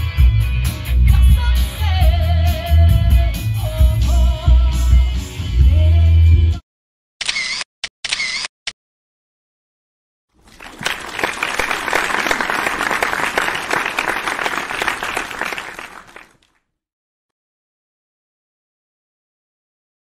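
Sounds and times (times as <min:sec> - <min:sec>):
crowd clapping: 0:10.4 - 0:16.6.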